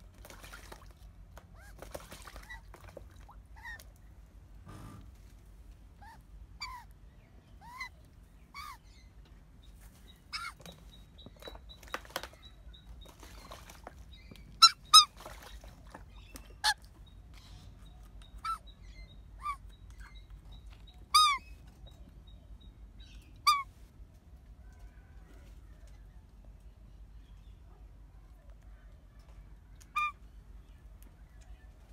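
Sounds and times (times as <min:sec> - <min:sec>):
magpie squawks: 0:29.9 - 0:30.2.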